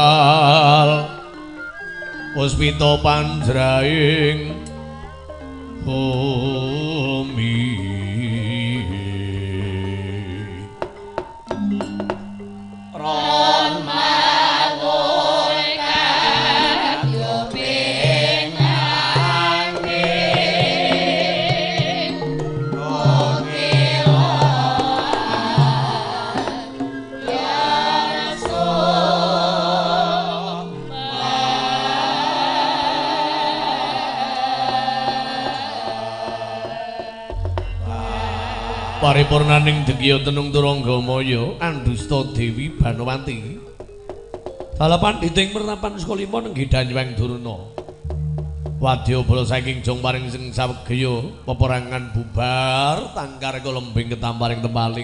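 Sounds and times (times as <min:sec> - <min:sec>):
person singing: 0:00.0 - 0:01.3, 0:05.8 - 0:11.0, 0:13.0 - 0:42.7
gamelan ensemble playing: 0:00.0 - 0:09.3, 0:10.0 - 0:41.8, 0:48.0 - 0:50.1.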